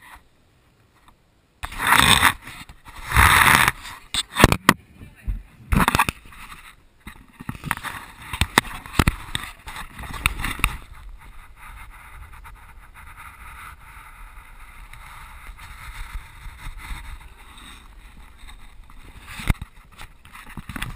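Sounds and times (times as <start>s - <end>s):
steady hiss: 0.0s - 20.9s.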